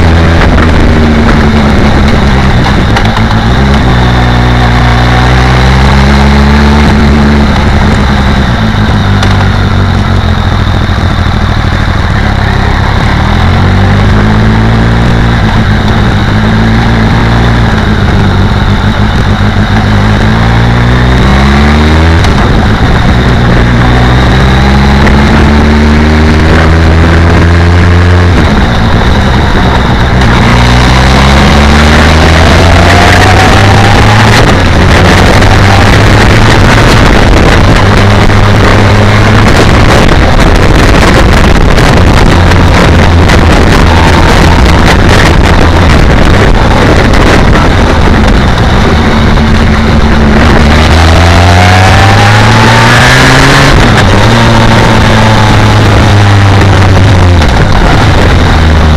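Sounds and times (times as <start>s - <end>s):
motorcycle engine revving: 0.0s - 58.9s
wind noise on microphone: 0.0s - 58.9s.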